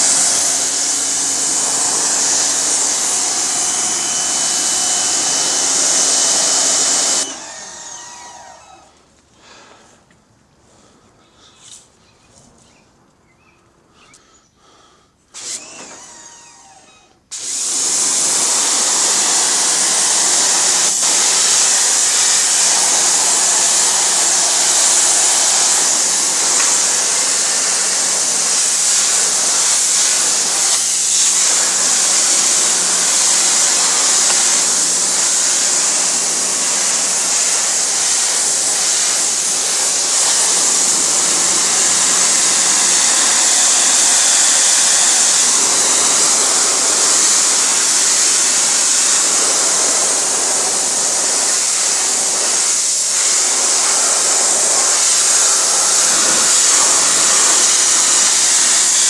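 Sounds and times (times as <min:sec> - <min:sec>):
high-pressure water jet hiss: 0:00.0 - 0:07.9, 0:17.4 - 0:59.0
electric motor pump hum: 0:00.0 - 0:08.9, 0:17.5 - 0:59.0.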